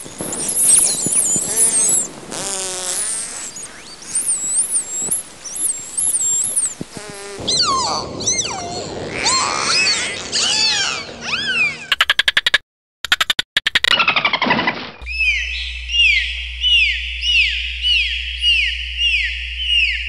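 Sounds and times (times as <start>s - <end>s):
dolphin buzzing pulses: 0.0s - 12.0s
dolphins whistling: 0.0s - 12.1s, 15.0s - 20.0s
dolphin chirps: 0.0s - 12.5s, 15.0s - 20.0s.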